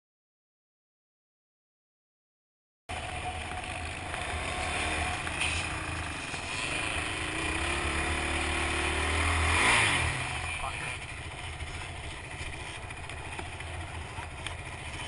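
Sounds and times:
atv engine accelerating: 0:02.9 - 0:15.0
rumble and rush of noise: 0:02.9 - 0:15.0.

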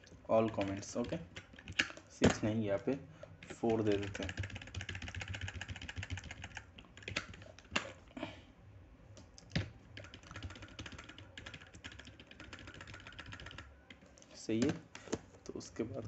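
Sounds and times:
computer keyboard typing: 0:00.4 - 0:02.0, 0:03.4 - 0:07.8, 0:09.4 - 0:14.0.

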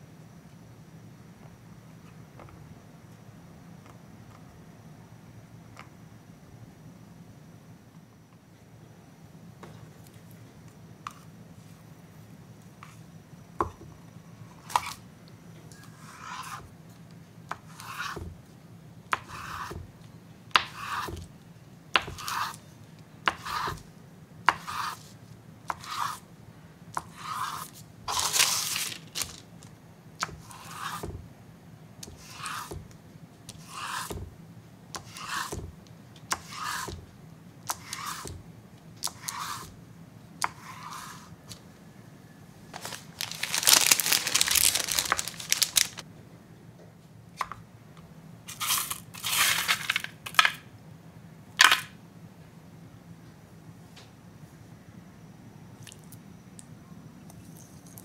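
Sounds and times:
knife cutting jelly: 0:19.1 - 0:19.9, 0:20.6 - 0:21.3, 0:22.0 - 0:25.1, 0:33.5 - 0:34.3, 0:34.9 - 0:35.7, 0:36.3 - 0:37.0, 0:37.7 - 0:38.4, 0:39.0 - 0:39.7, 0:40.4 - 0:41.3
jelly cubes tossed on paper: 0:28.1 - 0:29.7, 0:42.8 - 0:46.0, 0:48.6 - 0:50.5
paper rustling: 0:28.1 - 0:29.7, 0:42.7 - 0:46.0, 0:48.6 - 0:50.5.

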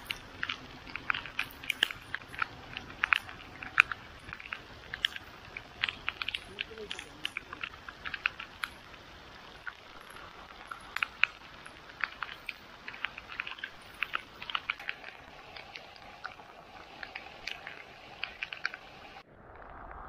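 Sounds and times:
water dripping and splashing: 0:00.0 - 0:19.8
steady hiss: 0:00.0 - 0:20.0.

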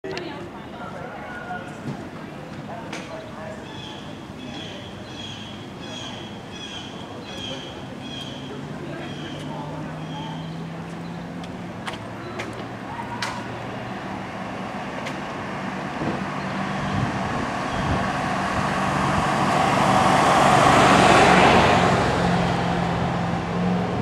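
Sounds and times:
pickup truck driving past: 0:07.8 - 0:24.0.

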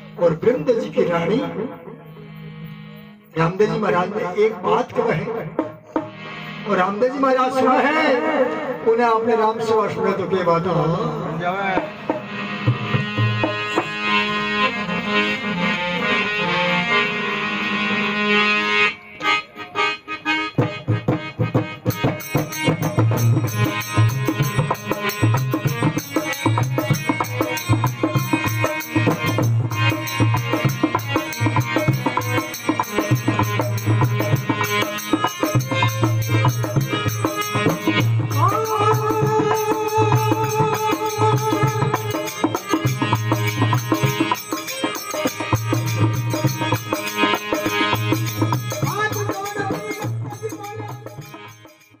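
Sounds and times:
harmonium: 0:00.0 - 0:52.0
hand drum beat: 0:20.6 - 0:51.7
bright ticking percussion: 0:20.6 - 0:52.0.

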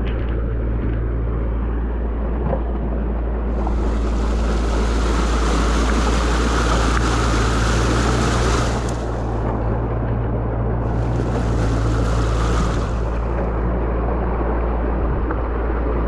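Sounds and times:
deep rumble: 0:00.0 - 0:16.0
stream water rushing: 0:03.5 - 0:16.0.

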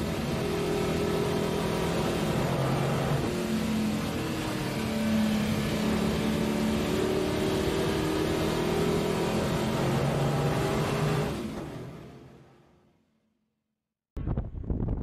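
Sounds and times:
race car engine under load: 0:00.0 - 0:12.8.

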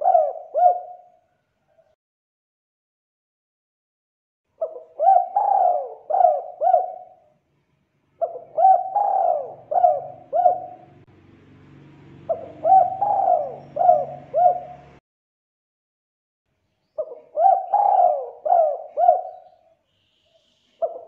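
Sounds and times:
dove cooing: 0:00.0 - 0:02.0, 0:04.6 - 0:07.3, 0:08.2 - 0:11.1, 0:12.2 - 0:15.0, 0:17.0 - 0:21.0.

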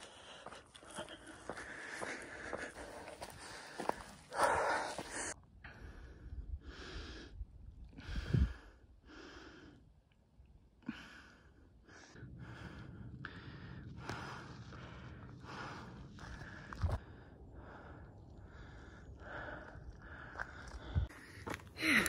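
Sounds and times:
person breathing hard: 0:00.0 - 0:07.4, 0:08.0 - 0:09.8, 0:10.8 - 0:22.0
low steady rumble: 0:11.2 - 0:21.1.

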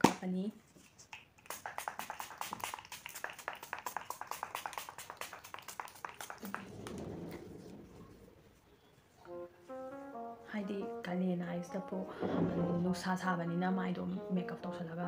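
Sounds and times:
fingertips patting skin: 0:01.1 - 0:07.2
soft low rustle: 0:06.5 - 0:09.2.

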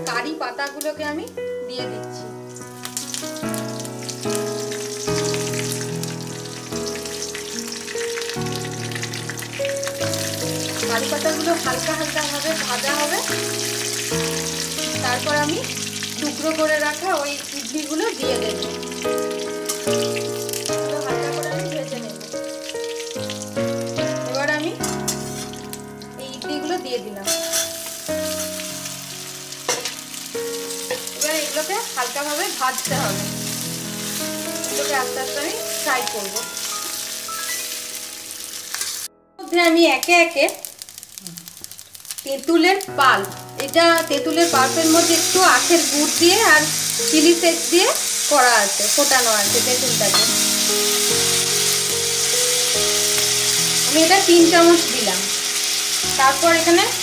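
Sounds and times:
background music: 0:00.0 - 0:40.4, 0:42.4 - 0:57.0
leaves sizzling in hot oil: 0:00.0 - 0:57.0
metal spatula stirring: 0:27.3 - 0:28.6, 0:30.8 - 0:31.6.

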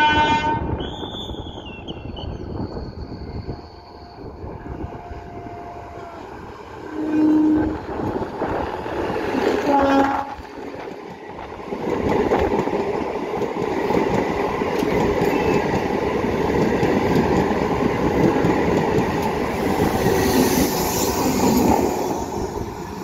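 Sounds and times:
train wheels rumbling and clattering: 0:07.6 - 0:23.0
rushing hiss: 0:19.5 - 0:22.9.

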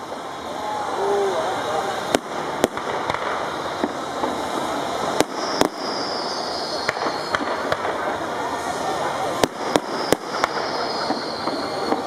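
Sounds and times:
fireworks crackle and rumble: 0:00.0 - 0:12.0
firework shell bangs: 0:09.4 - 0:12.0.

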